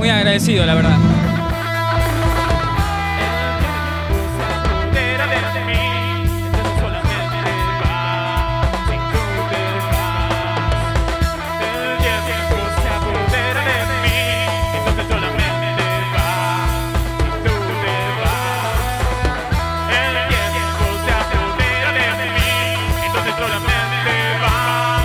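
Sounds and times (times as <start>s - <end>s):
person singing: 0.0s - 25.0s
rock band playing: 0.0s - 25.0s.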